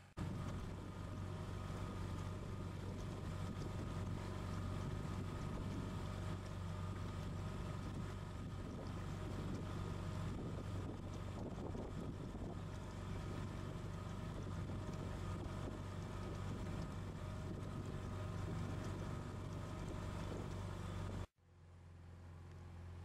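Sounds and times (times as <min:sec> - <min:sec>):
outboard motor humming: 0:00.0 - 0:21.3
wind on microphone: 0:07.8 - 0:13.6.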